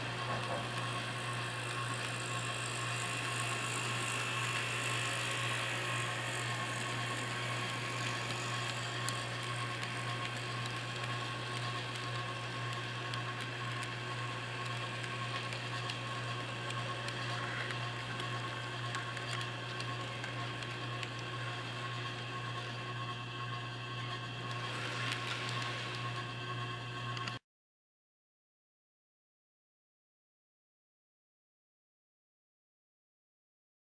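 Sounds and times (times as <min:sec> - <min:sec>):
wheels clicking on rails: 0:00.0 - 0:21.6, 0:24.4 - 0:26.2
model train motor whirring: 0:00.0 - 0:27.4.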